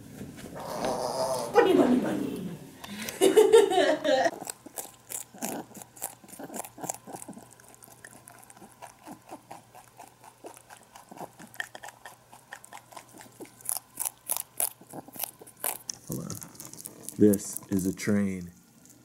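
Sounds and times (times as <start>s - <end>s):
rabbit chewing leaves: 4.3s - 19.0s.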